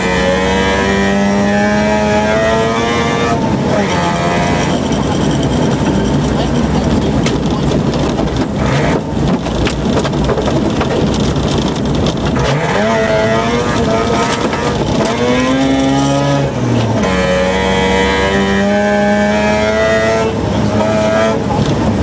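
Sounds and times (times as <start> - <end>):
rotary engine accelerating: 0.0 - 9.7, 11.1 - 22.0
gravel and tyre rumble: 0.0 - 22.0
stones rattling against car: 4.7 - 16.9.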